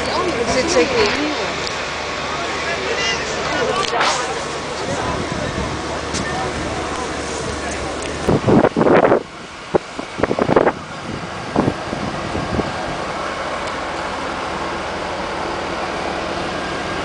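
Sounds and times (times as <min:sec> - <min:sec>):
fire engine running: 0:00.0 - 0:17.0.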